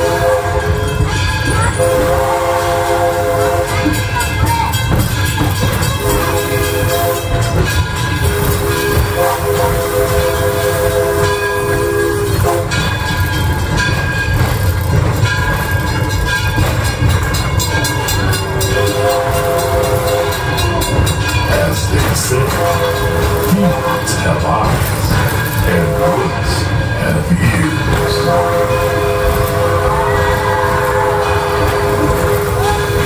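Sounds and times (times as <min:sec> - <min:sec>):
train rumbling on track: 0:00.0 - 0:33.0.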